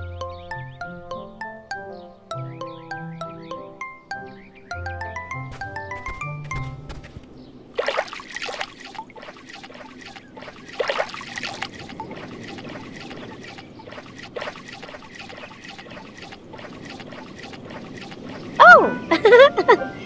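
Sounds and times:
water trickling and lapping: 5.5 - 19.8
water splash: 5.9 - 19.3.

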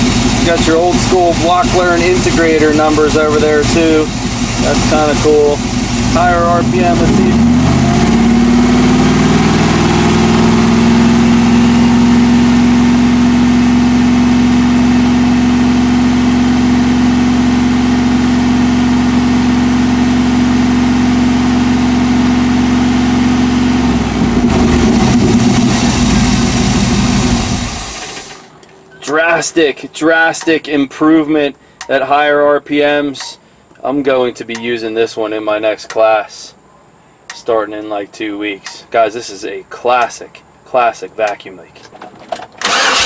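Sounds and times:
car engine at raised revs: 0.0 - 28.5, 42.6 - 43.0.

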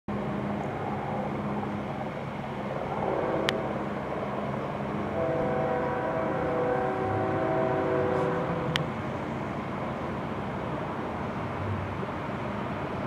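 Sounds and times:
diesel locomotive engine drone: 0.1 - 13.0
multi-tone air horn: 3.0 - 3.7, 5.1 - 8.7.

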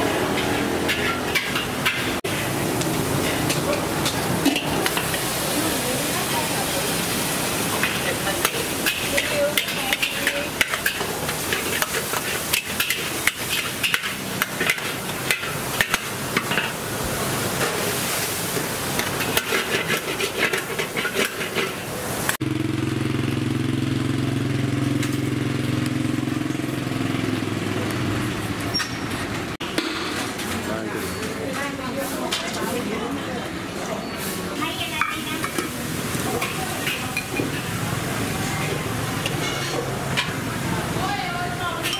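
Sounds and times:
food sizzling in a pan: 0.0 - 27.6, 34.1 - 41.9
metal utensil clattering on pan: 0.3 - 2.2, 3.2 - 5.2, 7.7 - 16.8, 19.0 - 21.8, 39.2 - 40.4.

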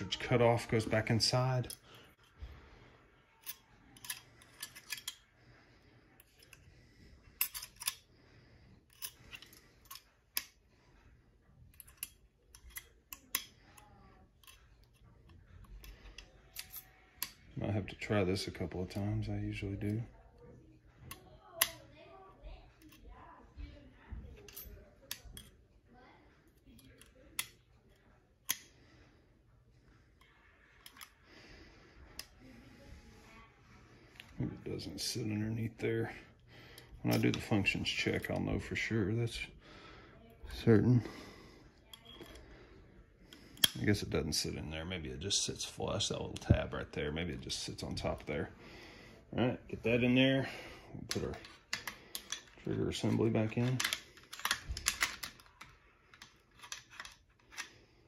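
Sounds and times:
faint handling noise: 0.0 - 39.5, 40.3 - 58.0
steel parts clicking and scraping: 3.4 - 5.4, 6.2 - 8.1, 8.8 - 10.6, 11.6 - 17.5, 28.4 - 28.7, 30.2 - 31.2, 51.1 - 57.8.

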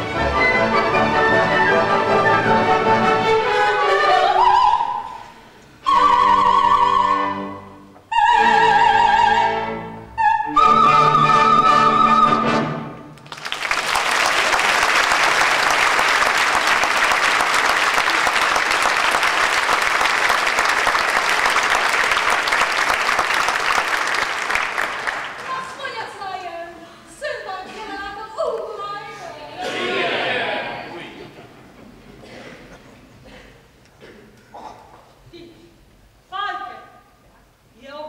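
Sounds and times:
orchestra and singers: 0.0 - 13.2, 27.0 - 31.5
applause: 13.2 - 25.8.

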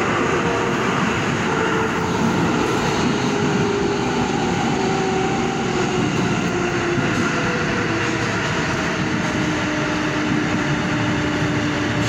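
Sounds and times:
subway train wheels rumbling on rail: 0.0 - 12.0.

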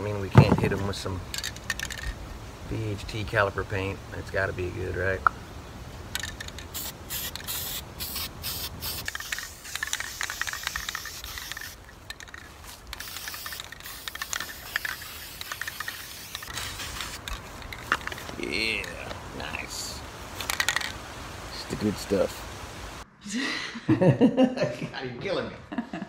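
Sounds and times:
aerosol spray can hissing: 6.6 - 11.8, 12.7 - 17.2.

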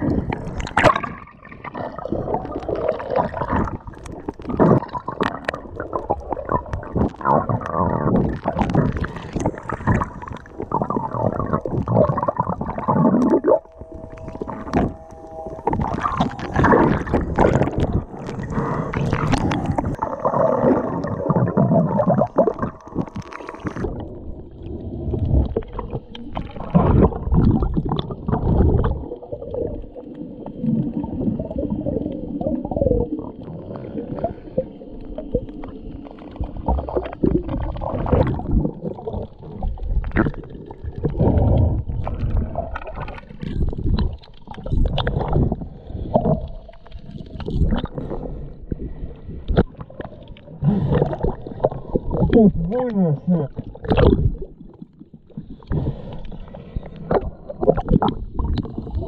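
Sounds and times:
underwater rushing and gurgling: 0.0 - 59.0
steady hum: 9.1 - 24.2.

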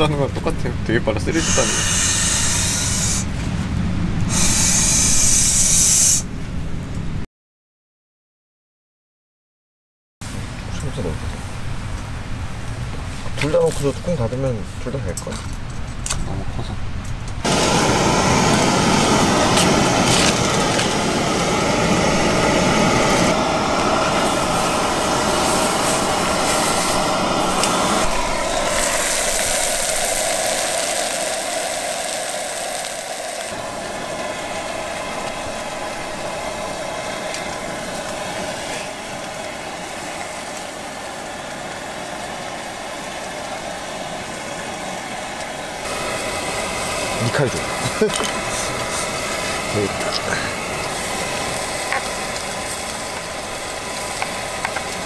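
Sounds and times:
gas stove burners roaring: 0.0 - 7.2, 10.3 - 55.0
meat sizzling in a frying pan: 17.5 - 33.6, 45.8 - 55.0.

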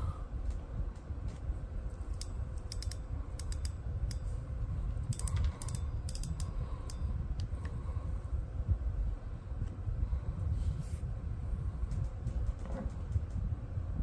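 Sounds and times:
fishing reel clicks and taps: 2.1 - 4.2.

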